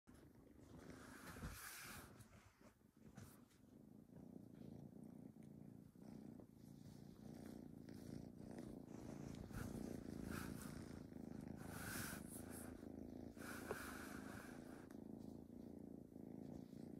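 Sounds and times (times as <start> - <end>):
kitten purring: 0.1 - 16.9.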